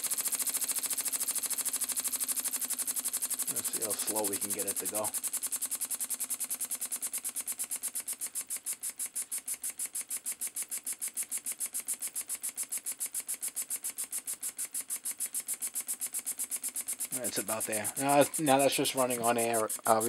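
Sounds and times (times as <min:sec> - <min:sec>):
model engine air exhaust puffing: 0:00.0 - 0:20.0.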